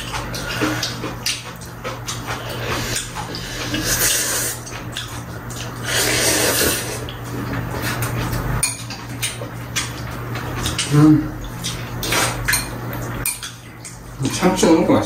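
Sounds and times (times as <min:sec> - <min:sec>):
chopsticks clicking against bowls: 0:00.0 - 0:05.8, 0:07.0 - 0:14.6
noodles being slurped: 0:00.0 - 0:08.6.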